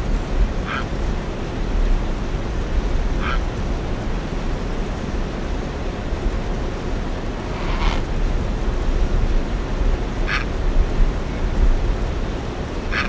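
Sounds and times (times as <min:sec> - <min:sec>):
low rumbling noise: 0:00.0 - 0:13.0
egret croak: 0:00.6 - 0:00.9, 0:03.2 - 0:03.4, 0:07.4 - 0:08.1, 0:10.3 - 0:10.5.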